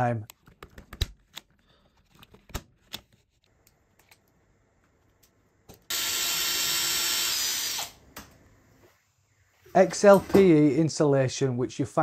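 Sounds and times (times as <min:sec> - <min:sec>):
cordless drill running: 0:05.9 - 0:08.0.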